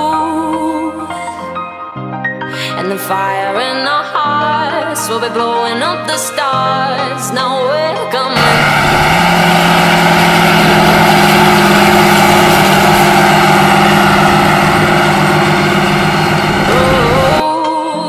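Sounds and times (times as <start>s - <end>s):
music: 0.0s - 8.4s, 16.7s - 18.0s
tractor diesel engine running: 8.3s - 17.4s.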